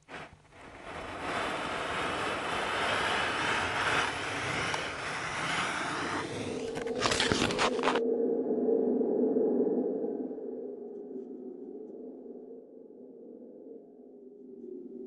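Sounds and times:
steady rushing roar: 0.0 - 8.0.

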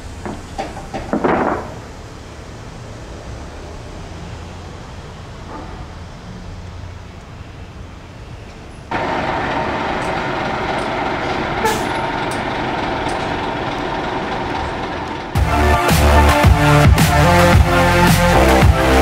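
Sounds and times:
diesel engine running: 8.9 - 19.0.

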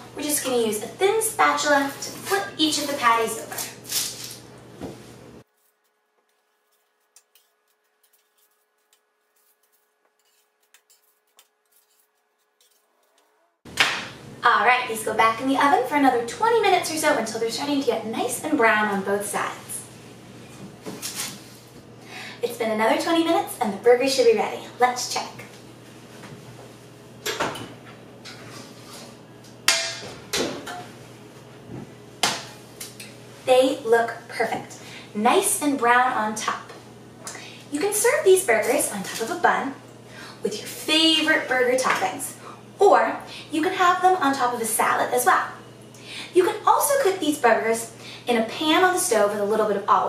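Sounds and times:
metal spatula scraping baking sheet: 1.4 - 4.4, 5.6 - 13.3
faint steady hum: 14.0 - 50.0.

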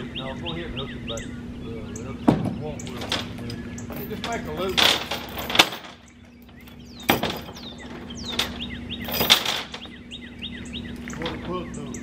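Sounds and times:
small birds chirping: 0.0 - 12.0
loud knocks on log: 2.3 - 2.6.

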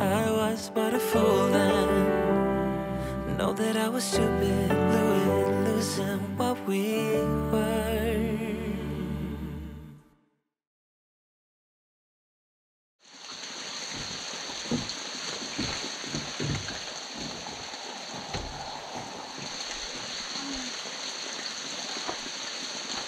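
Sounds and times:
steady rain falling: 13.1 - 23.0
heavy drops knocking: 14.0 - 15.0, 15.6 - 17.4.

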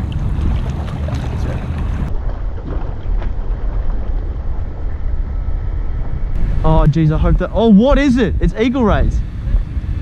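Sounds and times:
water sloshing against rocks: 0.0 - 4.8
wind buffeting microphone: 0.0 - 10.0.

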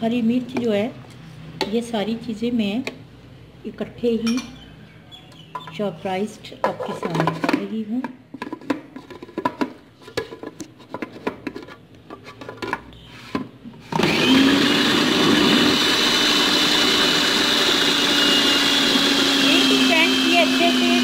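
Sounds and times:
food processor motor whining: 13.9 - 21.0.

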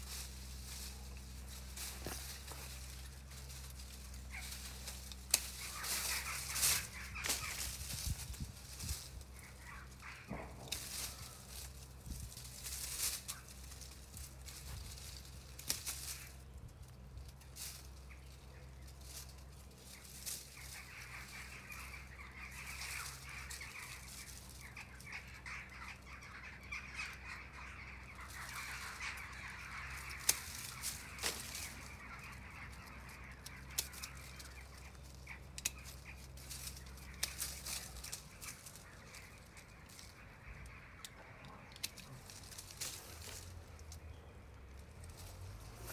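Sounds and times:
pruning shears snipping twigs: 0.0 - 25.2, 29.9 - 32.0, 32.6 - 40.1, 41.0 - 44.1
rustle of dry leaves: 0.0 - 45.9.

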